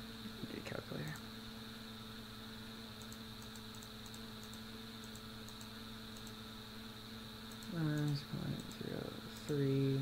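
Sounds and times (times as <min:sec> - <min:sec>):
steady electrical hum: 0:00.0 - 0:10.0
computer mouse clicks: 0:03.0 - 0:06.4, 0:07.5 - 0:09.6.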